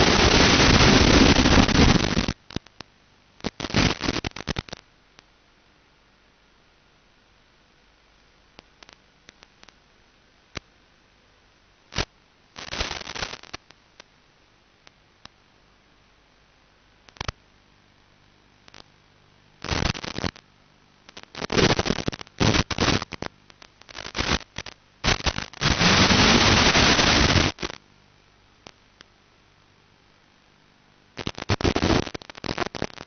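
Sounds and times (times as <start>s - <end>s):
static ticks: 0.0s - 5.3s, 8.2s - 9.8s, 10.5s - 10.8s, 11.9s - 14.2s, 14.8s - 15.4s, 17.0s - 17.4s, 18.6s - 19.0s, 19.6s - 20.4s, 21.1s - 27.8s, 28.6s - 29.2s, 31.2s - 33.0s
static hiss bursts from video receiver: 0.0s - 11.0s, 11.6s - 33.0s.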